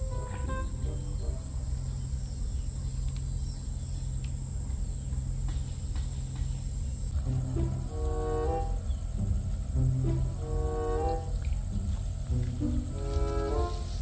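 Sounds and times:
constant low hum: 0.0 - 14.0
insects trilling: 0.0 - 14.0
faint clicks: 3.0 - 3.4.

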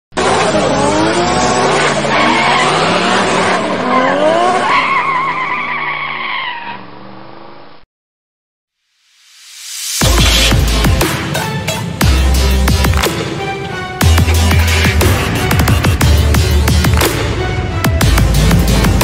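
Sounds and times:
car engine revving: 0.1 - 4.8, 14.0 - 19.0.

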